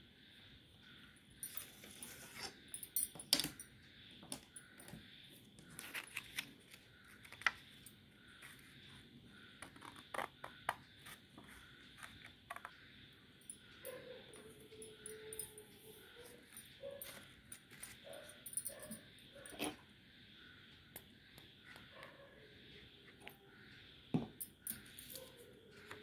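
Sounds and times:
paper rustling: 5.7 - 7.6.

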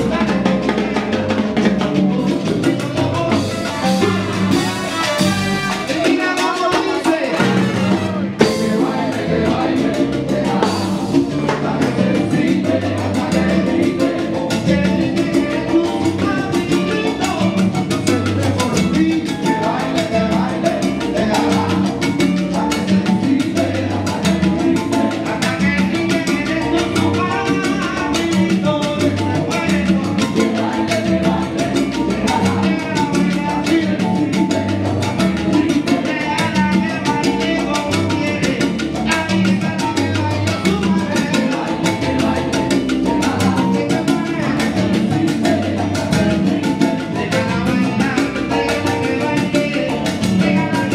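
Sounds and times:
congas and timbales: 0.0 - 50.9
live salsa band playing: 0.0 - 50.9
singers at microphones: 8.4 - 17.3.

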